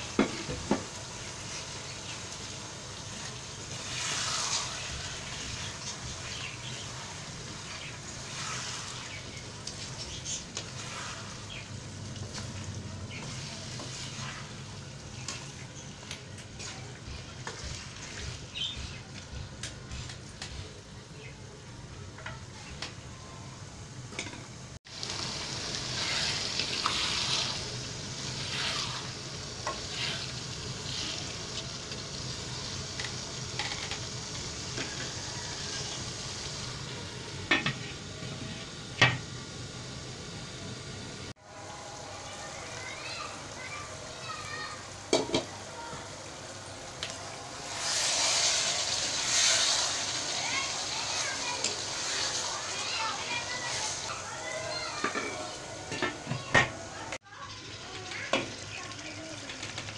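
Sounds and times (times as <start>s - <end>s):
potatoes sizzling: 0.0s - 59.9s
spatula scraping wok: 3.0s - 20.8s, 25.1s - 31.6s, 47.6s - 56.4s.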